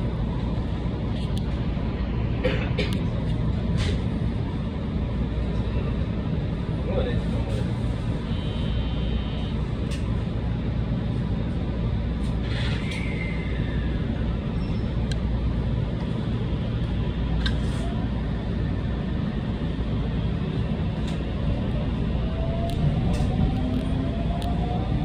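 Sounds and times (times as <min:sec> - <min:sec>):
train rumble: 0:00.0 - 0:25.0
falling squeal: 0:12.5 - 0:15.0.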